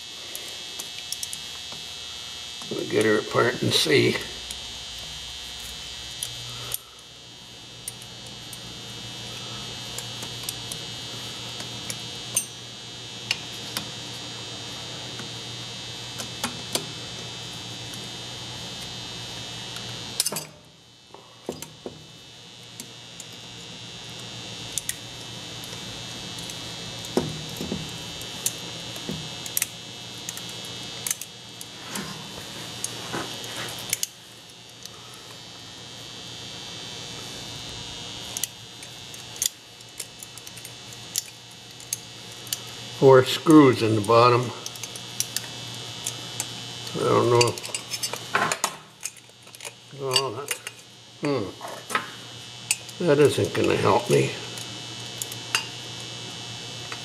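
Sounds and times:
high-pitched whine: 0:46.8 - 0:49.2, 0:49.9 - 0:54.6.

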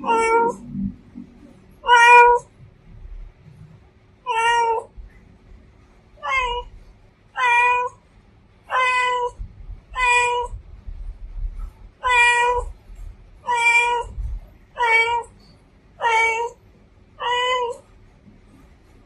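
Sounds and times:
cat meowing: 0:00.0 - 0:00.6, 0:01.8 - 0:02.5, 0:04.3 - 0:04.9, 0:06.2 - 0:06.7, 0:07.4 - 0:08.0, 0:08.7 - 0:09.4, 0:10.0 - 0:10.6, 0:12.0 - 0:12.8, 0:13.4 - 0:14.2, 0:14.8 - 0:15.4, 0:16.0 - 0:16.6, 0:17.2 - 0:17.8.

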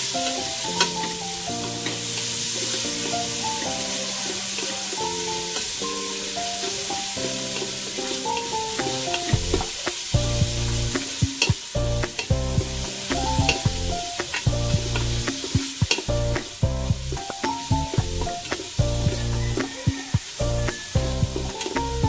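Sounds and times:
background music: 0:00.0 - 0:22.0
chicken sizzling in butter: 0:00.0 - 0:22.0.

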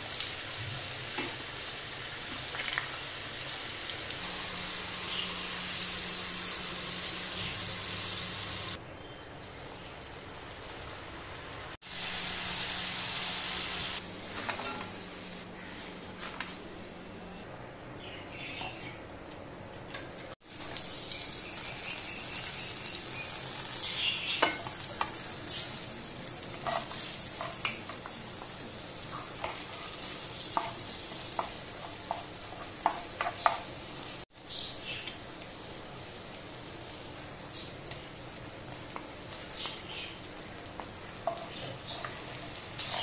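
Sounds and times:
garlic sizzling in butter: 0:00.0 - 0:08.8, 0:09.4 - 0:15.4, 0:20.4 - 0:43.0.

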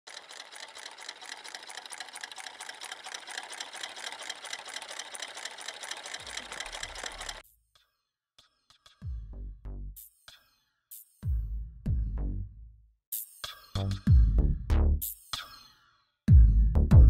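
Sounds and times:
engine mechanical clatter: 0:00.1 - 0:07.4.

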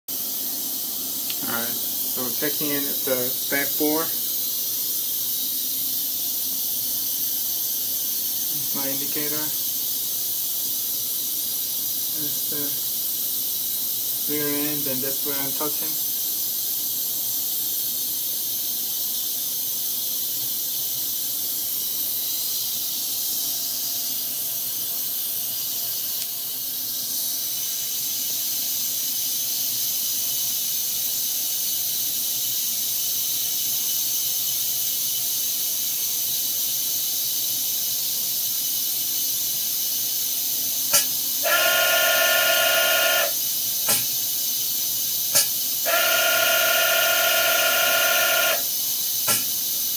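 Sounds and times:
high-pitched air hiss: 0:00.1 - 0:49.9
sharp machine click: 0:40.9 - 0:41.2, 0:43.2 - 0:44.2, 0:45.3 - 0:45.6, 0:48.5 - 0:49.6
buzzing tone: 0:40.9 - 0:43.4, 0:45.4 - 0:48.7.

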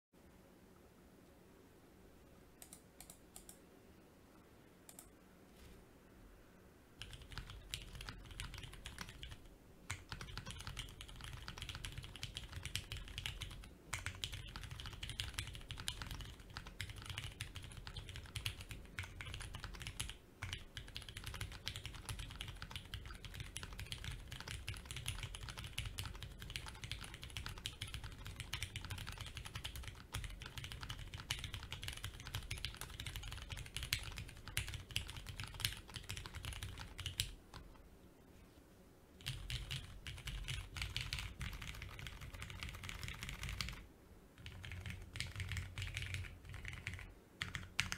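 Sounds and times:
fast typing on mechanical keyboard: 0:07.0 - 0:37.8, 0:39.2 - 0:43.8, 0:44.4 - 0:47.9.

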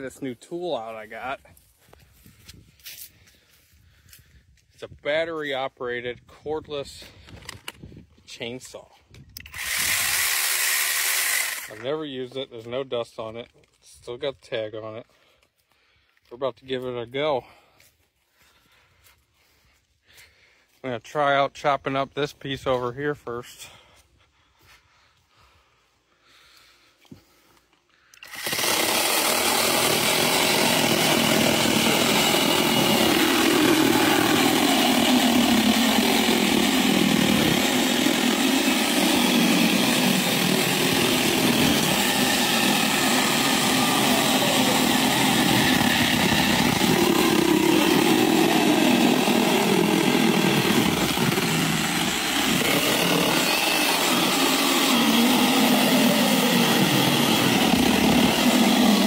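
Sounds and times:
electric chainsaw cutting wood: 0:09.4 - 0:11.9, 0:28.1 - 0:59.0.

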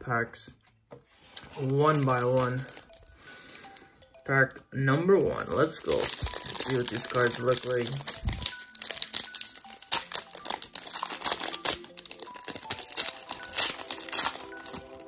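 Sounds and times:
foil wrapper tearing and crinkling: 0:01.4 - 0:02.9, 0:05.4 - 0:15.0.

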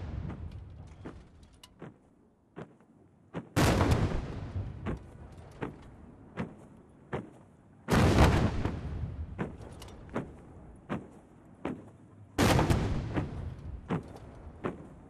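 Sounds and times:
cannon shots echoing: 0:03.6 - 0:04.9, 0:07.9 - 0:09.6, 0:12.4 - 0:13.9.

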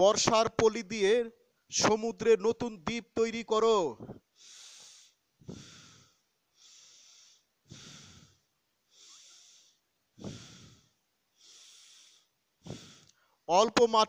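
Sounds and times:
person breathing deeply: 0:04.3 - 0:13.4.

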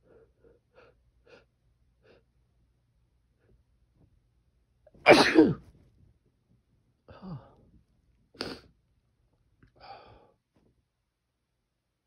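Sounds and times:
person sneezing: 0:05.1 - 0:05.6, 0:08.4 - 0:08.7.

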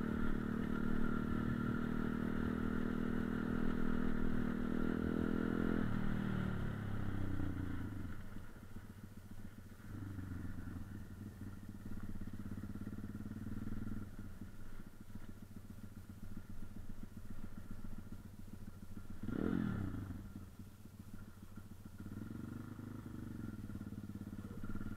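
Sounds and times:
motorcycle engine running: 0:00.0 - 0:24.9
motorcycle engine sharp rev: 0:19.0 - 0:20.5.

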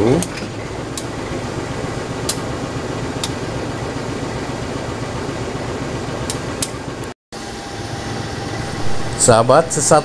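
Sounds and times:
diesel train idling hum: 0:00.4 - 0:02.6.

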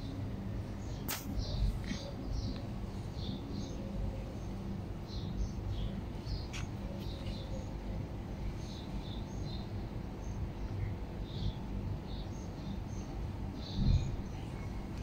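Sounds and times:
small birds chirping: 0:00.0 - 0:15.0
sharp click: 0:01.1 - 0:01.4.

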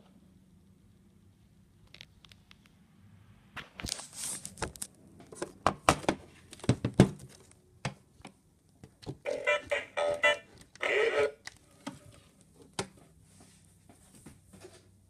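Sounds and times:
toy speaker broken pitched sounds: 0:09.2 - 0:11.4.

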